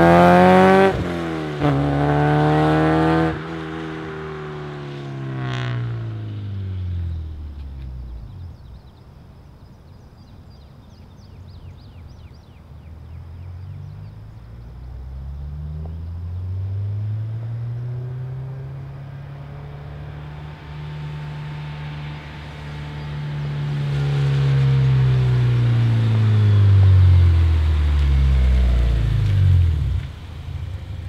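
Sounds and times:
car engine running: 1.6 - 8.9, 18.8 - 31.0.

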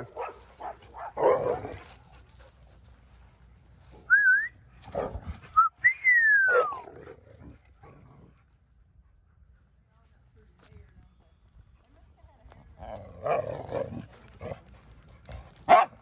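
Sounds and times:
dog barking: 0.0 - 1.5, 15.7 - 16.0
person whistling: 4.1 - 4.6, 5.6 - 6.5.

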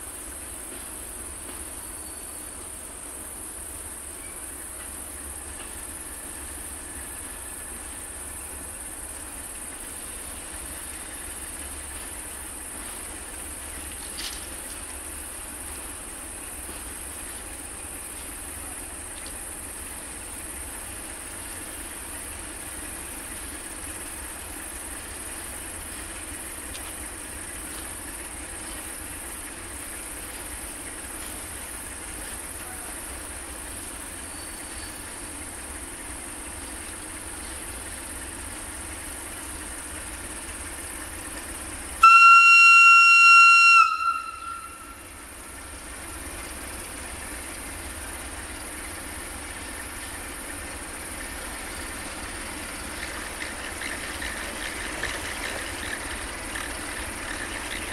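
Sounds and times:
crickets chirping: 0.0 - 57.9
locomotive engine idling: 0.0 - 57.9
locomotive horn: 42.0 - 45.2.

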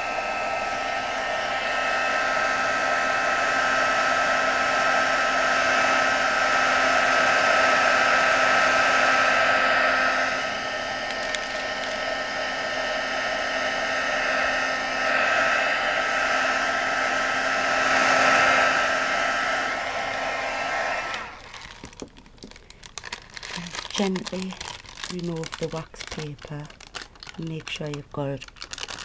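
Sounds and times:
heat gun blowing hiss: 0.0 - 21.9.

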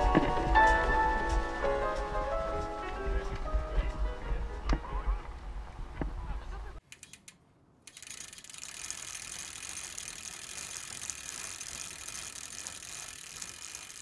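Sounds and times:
bicycle freehub ratchet clicking: 6.8 - 14.0.

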